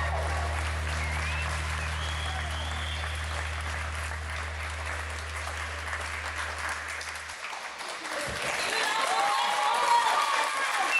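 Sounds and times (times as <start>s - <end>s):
low hum: 0.0s - 7.4s
audience applauding: 0.0s - 10.9s.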